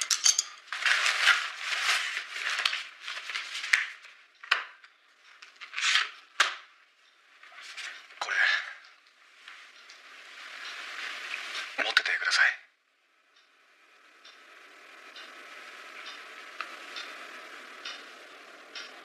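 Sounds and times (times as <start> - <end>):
rustling and crinkling objects: 0.6 - 6.6, 7.4 - 8.2.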